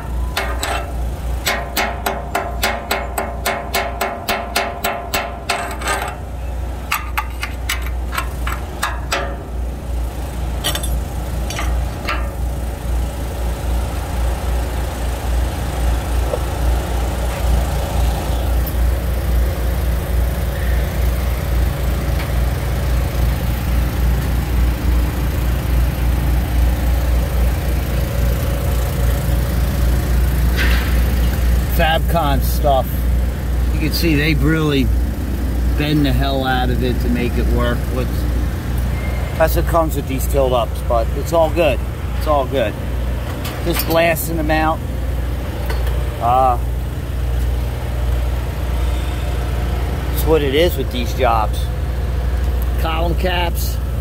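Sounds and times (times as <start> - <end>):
chipping hammer striking steel: 0.0 - 6.2
low engine drone: 0.0 - 54.0.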